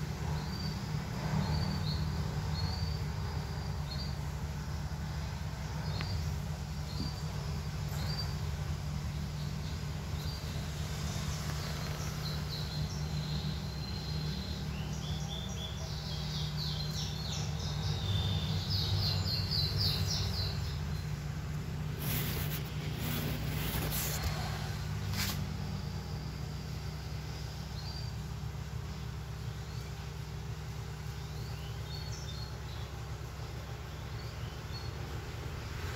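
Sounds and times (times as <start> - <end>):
low background rumble: 0.0 - 35.9
small birds chirping: 0.0 - 35.9
rustling: 21.5 - 25.6.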